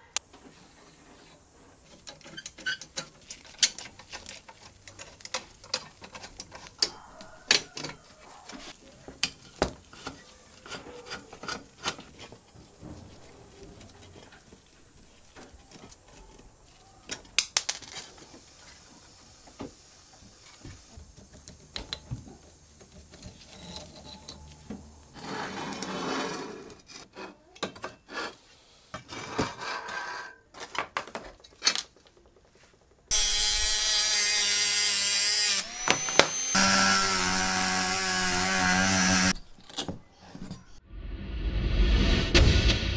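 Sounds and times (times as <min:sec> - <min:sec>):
metal scraping and rubbing: 0:23.2 - 0:26.9
power tool running loudly: 0:33.1 - 0:39.4.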